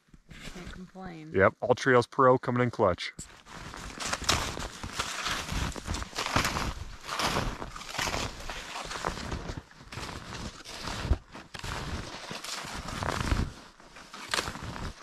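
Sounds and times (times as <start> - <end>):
snowshoe footsteps crunching snow: 3.2 - 15.0.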